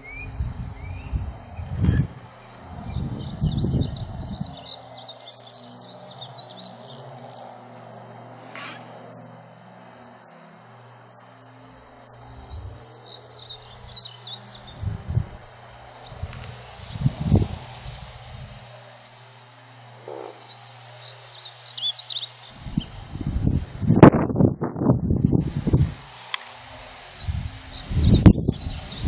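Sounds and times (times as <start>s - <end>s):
small birds chirping: 0.0s - 24.0s, 25.0s - 29.0s
insect sounds: 0.0s - 29.0s
low rumbling bursts: 12.2s - 18.8s.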